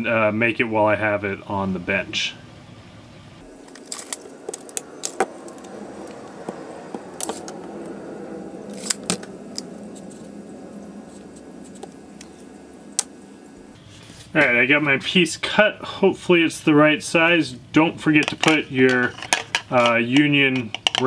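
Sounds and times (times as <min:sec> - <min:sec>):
plastic fittings clicking and clattering: 0:18.2 - 0:21.0.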